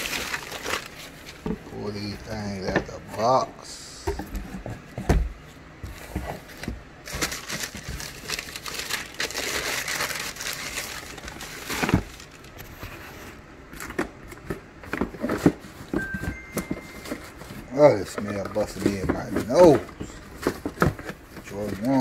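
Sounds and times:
tissue paper crinkling: 0.0 - 1.4, 6.4 - 13.3.

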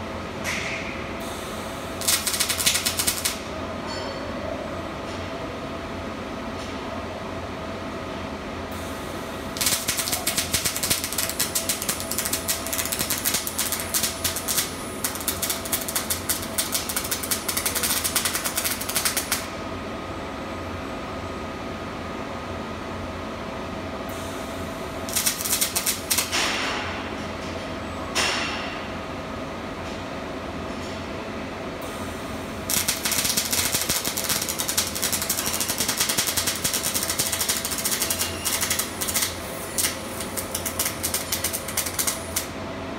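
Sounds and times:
steady hum of welding cell: 0.0 - 42.9
welding arc crackling: 2.0 - 3.5, 9.5 - 19.5, 25.1 - 26.5, 32.7 - 42.5.

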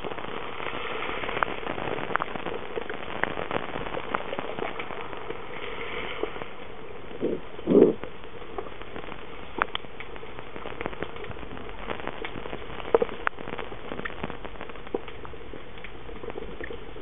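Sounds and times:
underwater hiss: 0.0 - 2.6, 4.0 - 8.0
sharp clicks and crackles: 0.0 - 17.0.

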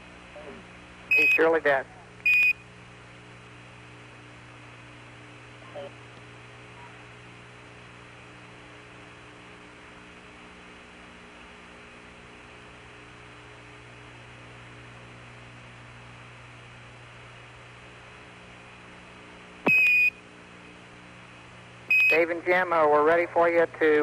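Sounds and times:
radio hum and hiss: 0.0 - 24.0
short high beep: 19.7 - 20.1, 21.9 - 22.2.

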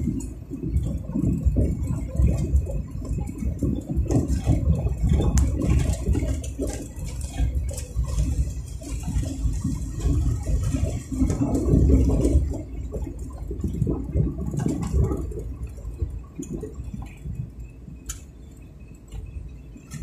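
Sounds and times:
road and wind noise: 0.0 - 20.0.

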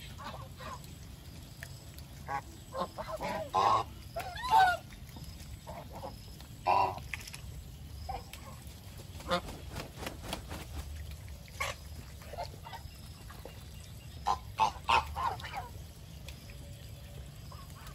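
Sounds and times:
geese honking: 14.3 - 15.7.

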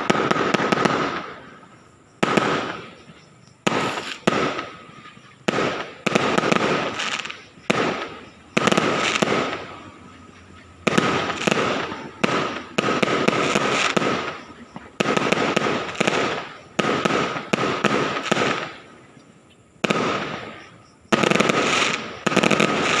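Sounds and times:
fireworks bursting: 0.0 - 23.0.

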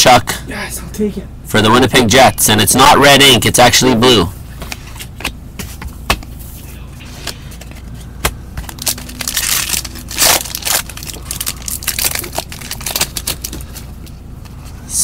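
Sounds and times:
wrapper crinkling and tearing: 8.6 - 13.9.

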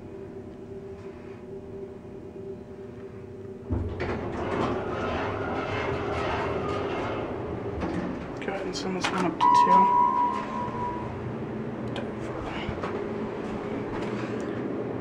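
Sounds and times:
faint steady hum: 0.0 - 4.2, 7.4 - 15.0
elevator doors sliding open: 3.7 - 11.4.

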